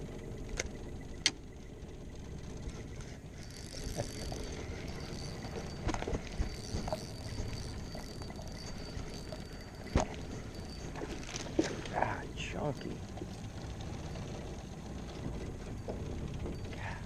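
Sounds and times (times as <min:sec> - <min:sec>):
fishing reel cranking whine: 0:02.2 - 0:17.0
wind and water hush: 0:03.2 - 0:17.0
rod and boat handling knocks: 0:09.9 - 0:10.3.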